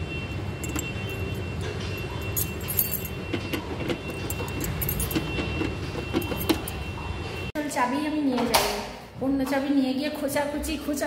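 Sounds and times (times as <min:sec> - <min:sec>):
key scraping in lock: 0:00.6 - 0:06.8
keys jangling: 0:00.6 - 0:06.8.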